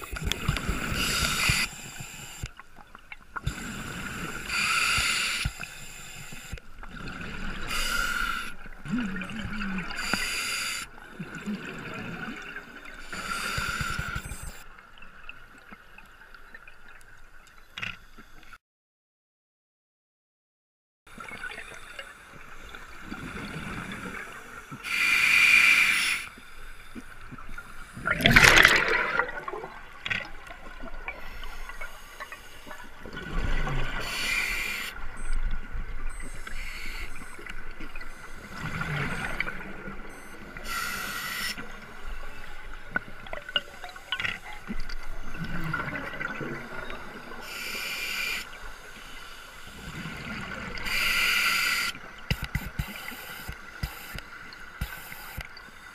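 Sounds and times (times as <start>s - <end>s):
underwater breath bubbling: 0.0s - 2.5s, 3.4s - 14.6s, 23.0s - 35.3s, 36.1s - 55.9s.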